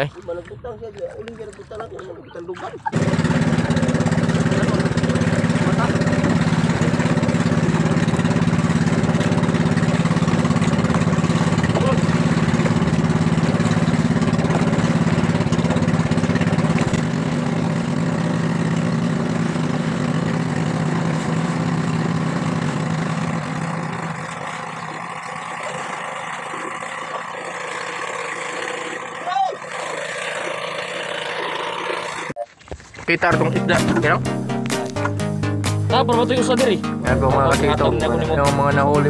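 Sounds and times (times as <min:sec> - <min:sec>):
wind: 0:00.0 - 0:33.3
water: 0:00.0 - 0:35.0, 0:36.0 - 0:39.0
boat engine humming: 0:00.0 - 0:39.0.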